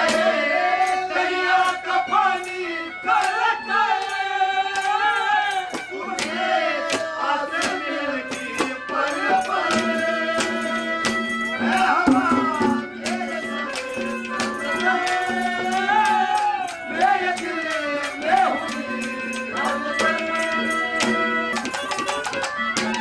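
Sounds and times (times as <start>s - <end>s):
sharp percussion strokes: 0.0s - 23.0s
bending melody: 11.4s - 15.0s.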